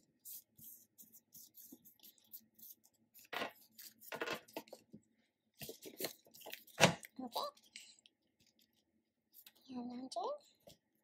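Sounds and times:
cards scraping and tapping on table: 3.3 - 4.8.

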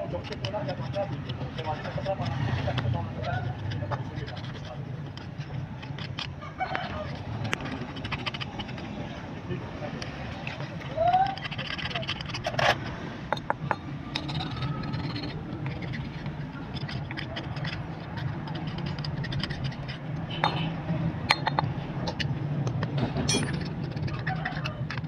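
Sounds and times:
hand tool clinking on metal: 23.2 - 25.0.

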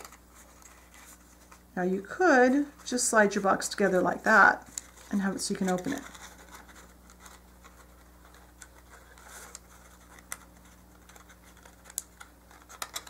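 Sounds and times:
low steady hum: 0.0 - 13.0
paper box clicks and rustles: 4.7 - 13.0.

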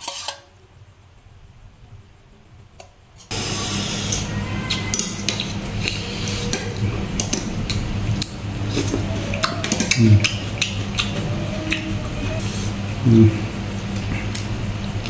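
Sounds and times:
metal spoon scraping plate: 0.0 - 0.5
steady low hum: 0.0 - 15.0
chewing: 4.7 - 12.4.

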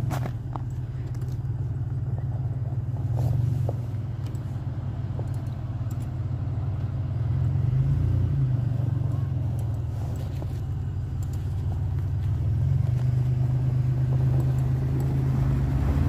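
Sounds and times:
vehicle engines rumbling: 0.0 - 16.0.

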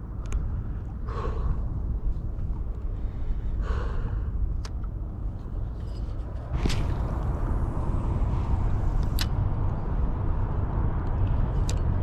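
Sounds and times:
wind rumbling on microphone: 0.0 - 12.0
breath: 1.1 - 1.7, 2.9 - 4.4.

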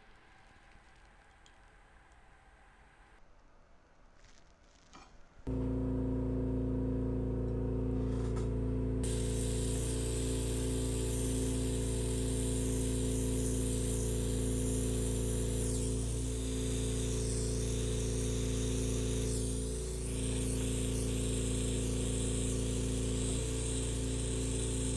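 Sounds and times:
buzzing hum: 5.5 - 24.9
torch flame hissing: 9.0 - 24.9.

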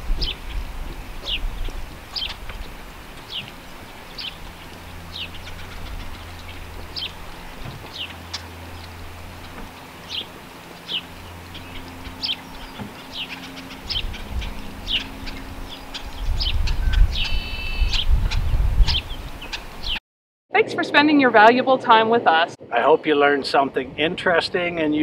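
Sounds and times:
low rumble: 0.0 - 20.0
small birds chirping: 0.0 - 20.0
steady low hum: 0.0 - 20.0.

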